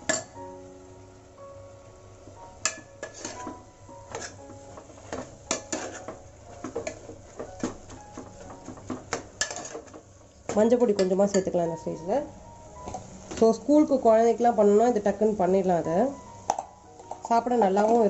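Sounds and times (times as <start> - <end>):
spoon scraping and clinking in pot: 2.6 - 4.4, 5.1 - 6.2, 9.4 - 10.0.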